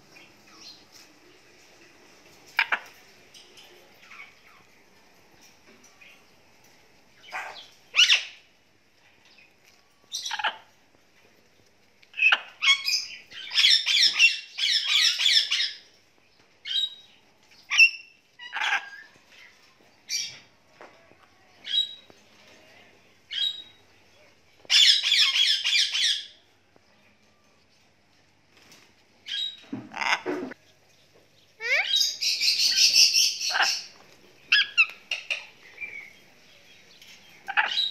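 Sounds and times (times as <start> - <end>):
parrot harsh chattering: 31.6 - 33.9, 37.5 - 37.9.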